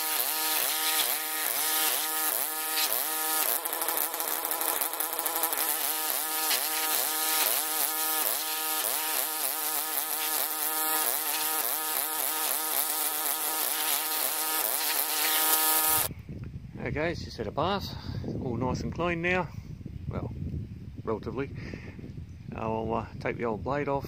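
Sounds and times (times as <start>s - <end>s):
pressure washer buzzing hum: 0.0s - 16.1s.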